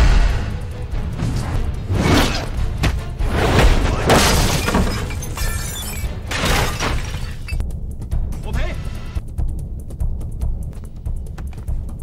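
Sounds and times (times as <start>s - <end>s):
crashes with shattering and breaking: 3.6s - 7.6s.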